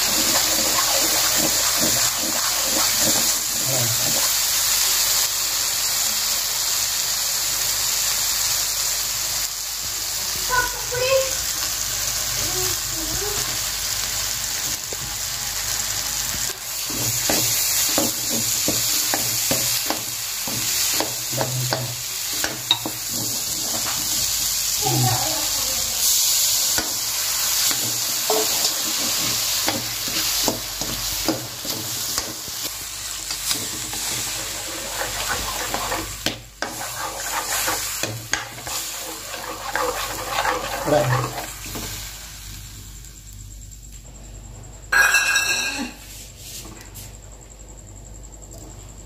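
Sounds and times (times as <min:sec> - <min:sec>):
utensil scraping a pan: 0:00.0 - 0:04.3, 0:27.6 - 0:41.9
food sizzling in a pan: 0:00.0 - 0:44.0, 0:44.9 - 0:47.7.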